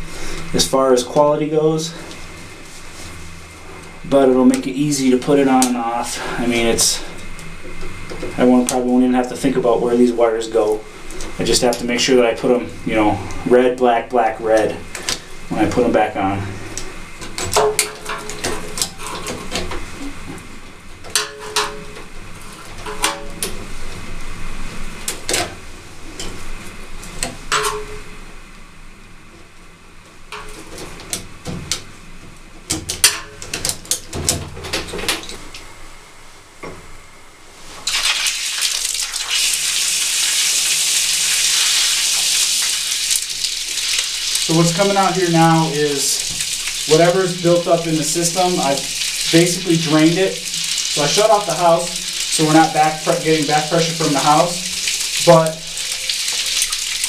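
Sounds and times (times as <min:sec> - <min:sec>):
water spraying hiss: 0:37.6 - 0:57.0.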